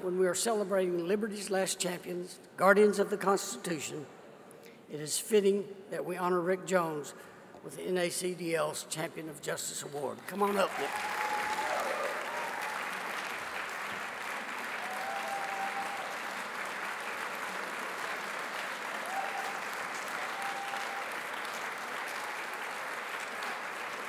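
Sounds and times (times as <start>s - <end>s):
audience applauding: 10.5s - 24.0s.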